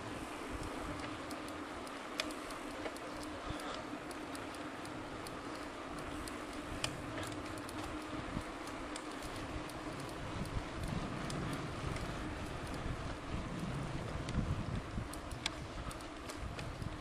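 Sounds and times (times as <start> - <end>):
bicycle tyres rolling on asphalt: 0.0 - 17.0
faint steady hum: 0.0 - 17.0
light clicks and rattles: 0.5 - 17.0
wind noise: 9.2 - 17.0.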